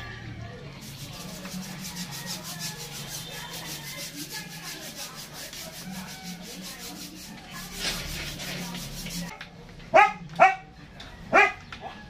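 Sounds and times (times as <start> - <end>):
hand scrubbing rubbing strokes: 0.8 - 9.3.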